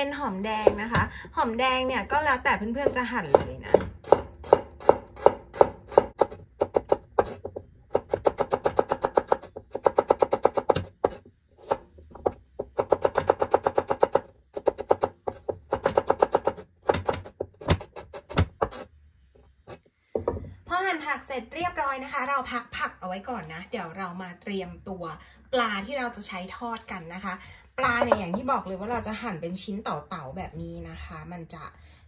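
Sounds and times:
cleaver chopping on wooden board: 0:02.9 - 0:18.8.

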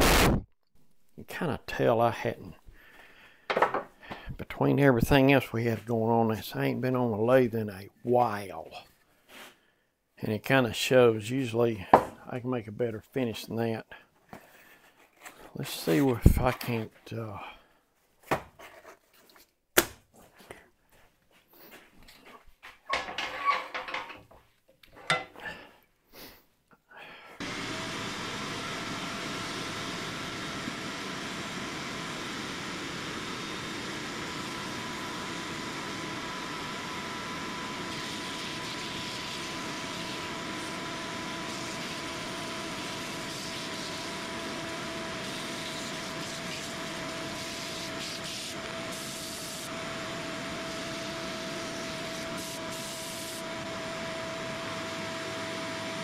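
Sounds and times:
wood lathe whining: 0:27.4 - 0:56.0
sanding sponge rubbing wood: 0:38.0 - 0:49.7.

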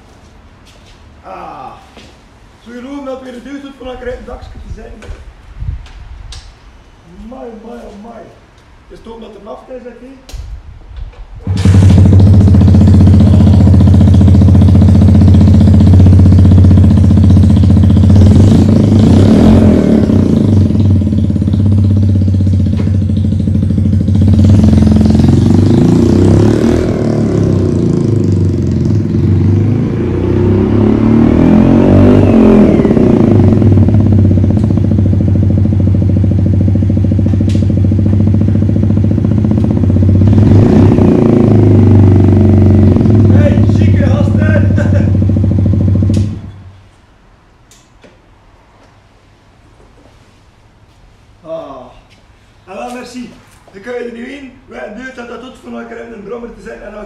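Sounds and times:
motorcycle engine revving: 0:11.4 - 0:46.7.

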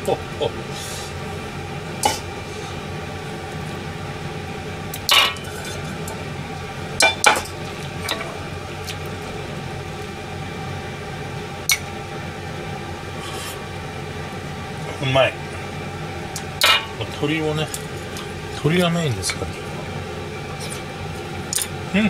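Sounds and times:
steady background noise: 0:00.0 - 0:22.0
utensils clinking on dishes: 0:05.1 - 0:06.1, 0:07.0 - 0:08.4, 0:16.6 - 0:17.0.

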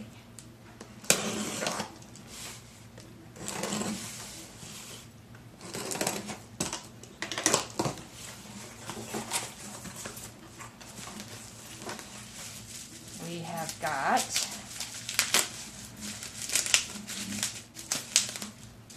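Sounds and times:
packing tape ripped off cardboard: 0:01.0 - 0:02.0, 0:03.4 - 0:04.1, 0:05.6 - 0:08.0, 0:13.6 - 0:18.9.

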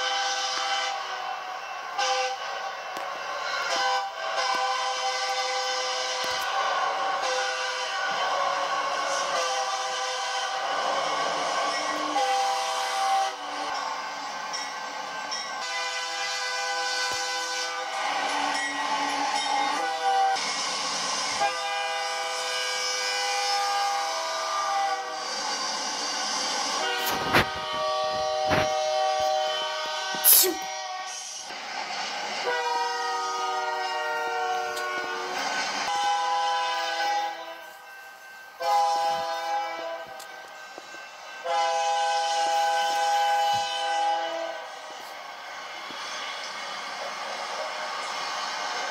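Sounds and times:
locomotive air horn blasts: 0:00.0 - 0:01.4, 0:02.0 - 0:02.6, 0:03.4 - 0:13.5, 0:15.6 - 0:18.6, 0:19.7 - 0:20.4, 0:21.3 - 0:25.3, 0:26.7 - 0:31.5, 0:32.4 - 0:37.6, 0:38.6 - 0:40.3, 0:41.4 - 0:45.2.

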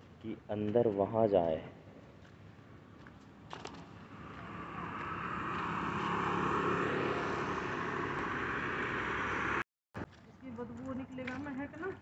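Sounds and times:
vehicle engine and tyre noise: 0:01.8 - 0:10.2.

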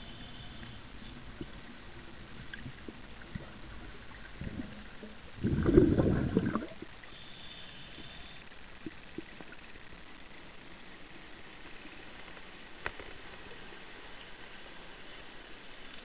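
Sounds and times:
underwater waterfall churning: 0:01.5 - 0:07.8.

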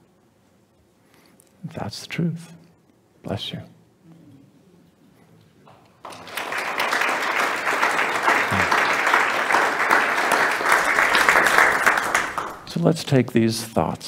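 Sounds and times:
congregation applauding: 0:06.0 - 0:12.8.

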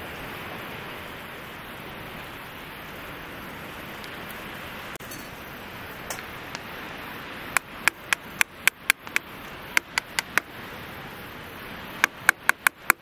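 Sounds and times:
steady hiss: 0:00.0 - 0:13.0
chopping wood: 0:12.0 - 0:13.0.

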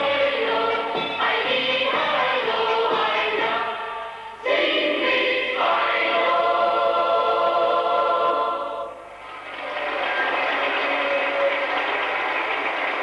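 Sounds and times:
women and children singing: 0:00.0 - 0:09.0.

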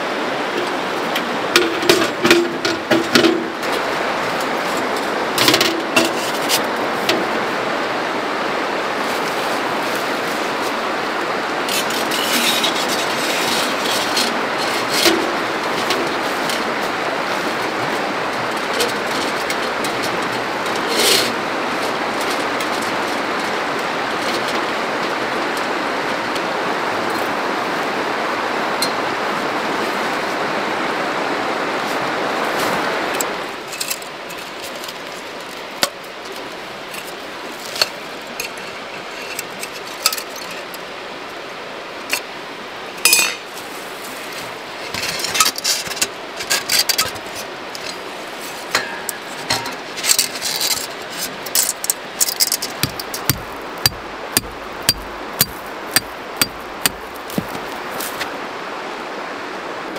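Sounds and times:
steady rushing noise: 0:00.0 - 0:59.9
metal pipes clinking together: 0:00.6 - 0:03.7, 0:43.0 - 0:43.5, 0:48.7 - 0:50.9.

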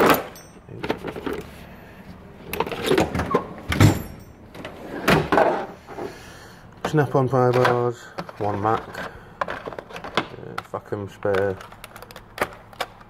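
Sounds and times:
tools rattling: 0:00.0 - 0:01.6, 0:02.4 - 0:06.1
drawer clunks: 0:02.6 - 0:05.8.

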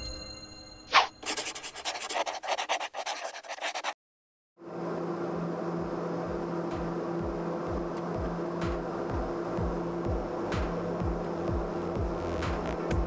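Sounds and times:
pen scratching: 0:01.0 - 0:04.0
aircraft cabin engine drone: 0:04.6 - 0:13.0.

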